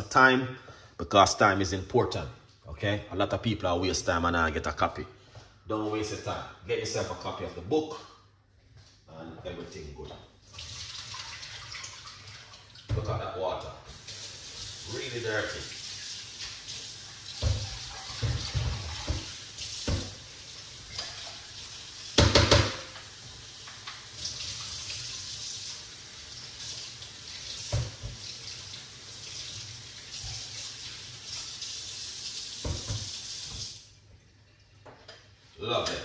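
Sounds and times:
water running into a sink: 10.4 - 13.0, 13.9 - 33.9
kitchenware clunks: 22.2 - 23.0.

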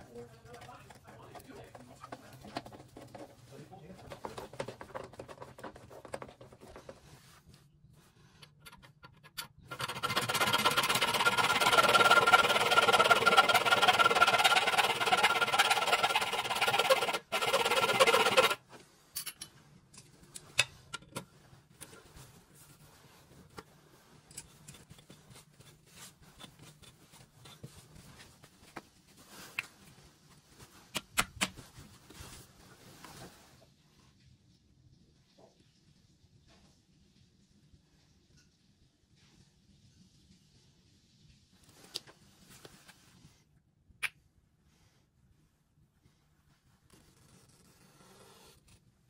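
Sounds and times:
power tool cutting bolt: 9.7 - 18.6.

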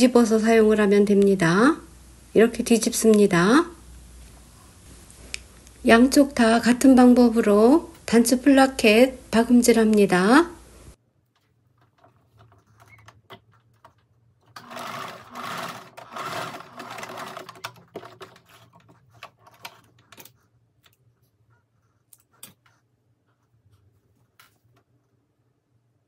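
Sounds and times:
sewing machine stitching: 11.8 - 20.4.

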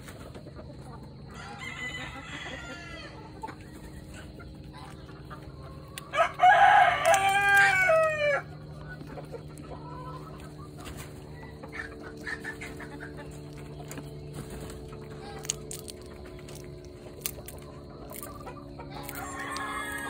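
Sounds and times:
steady low hum: 0.0 - 20.0
faint hen clucks: 0.1 - 20.0
rooster crowing: 1.2 - 3.4, 6.0 - 8.8, 18.8 - 20.0.

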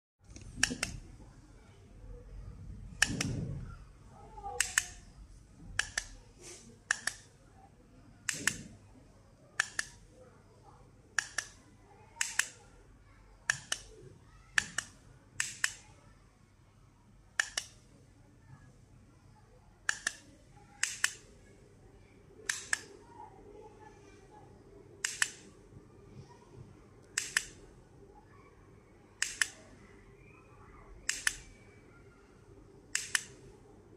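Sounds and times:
controller buttons clicking: 4.6 - 5.0, 5.8 - 6.2, 6.9 - 7.3, 9.6 - 10.0, 12.2 - 12.6, 13.5 - 14.0, 17.4 - 17.8, 19.9 - 20.2, 22.4 - 22.9, 25.0 - 25.5, 27.1 - 27.6, 29.2 - 29.6, 31.0 - 31.5, 33.0 - 33.4.

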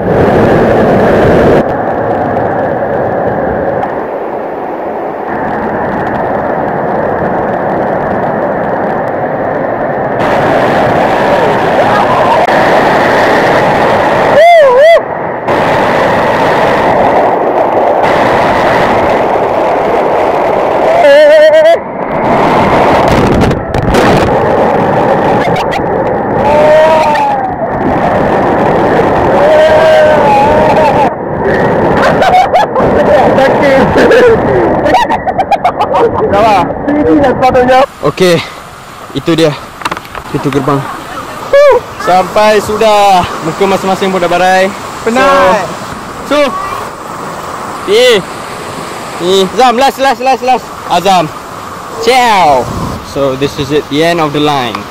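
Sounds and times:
waterfall rushing: 0.0 - 54.9
person shouting: 14.3 - 15.0, 20.9 - 21.8, 26.4 - 27.6, 29.3 - 31.1, 41.5 - 42.4.

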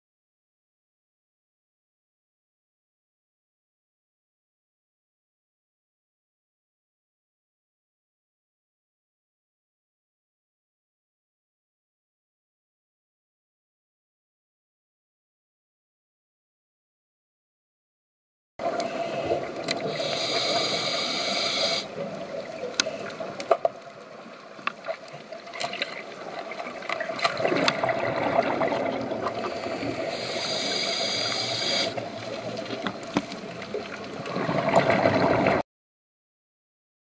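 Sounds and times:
diver inhaling through regulator: 18.7 - 22.0, 29.3 - 32.2
exhaled bubbles burbling: 25.8 - 35.6.

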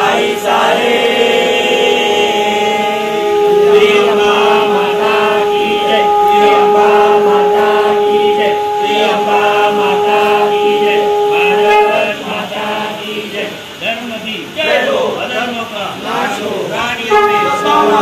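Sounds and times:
held drone tone: 0.0 - 13.2, 17.0 - 18.0
voices chanting: 0.0 - 13.9, 14.5 - 18.0.

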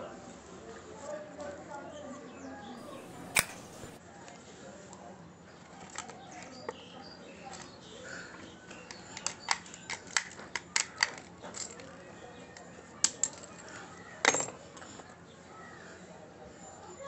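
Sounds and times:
padlock clack: 2.8 - 4.0
padlock clicking: 2.8 - 4.0.

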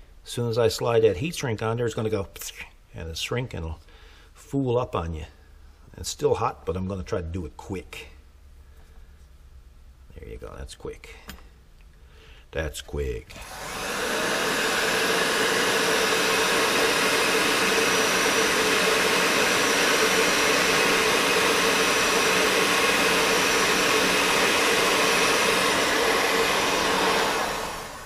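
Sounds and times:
heat gun blowing air: 13.3 - 28.0.

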